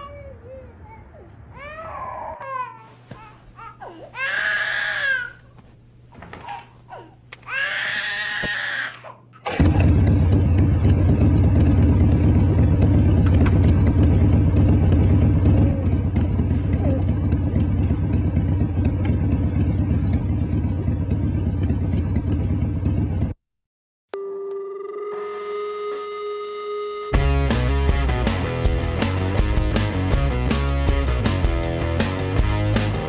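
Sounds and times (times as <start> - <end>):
motorcycle engine idling: 9.6 - 23.4.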